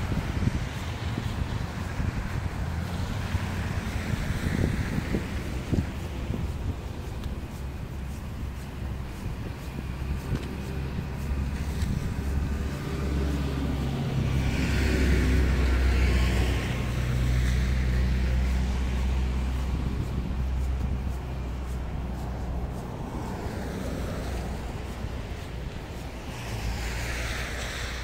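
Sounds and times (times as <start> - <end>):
low rumble of traffic: 0.0 - 28.0
car driving past: 22.1 - 28.0.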